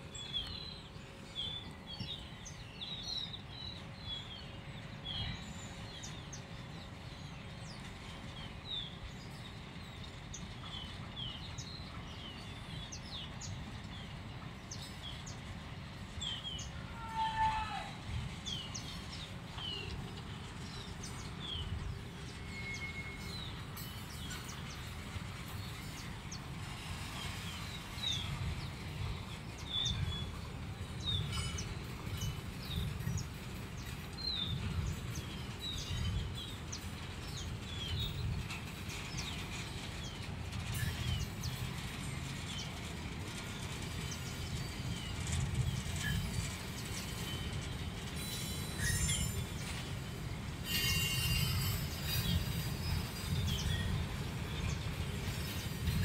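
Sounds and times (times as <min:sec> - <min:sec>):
freight train rumbling: 0:00.0 - 0:56.0
small birds chirping: 0:18.2 - 0:56.0.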